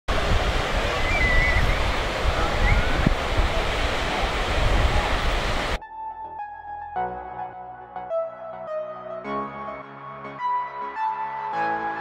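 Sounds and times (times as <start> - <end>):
wind buffeting microphone: 0.1 - 5.8
soft electronic music: 5.8 - 12.0.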